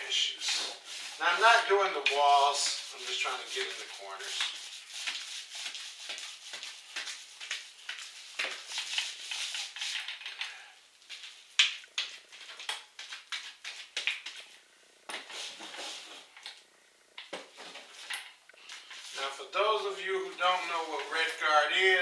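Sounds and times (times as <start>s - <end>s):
applicator scrubbing wet membrane: 0.1s - 10.2s.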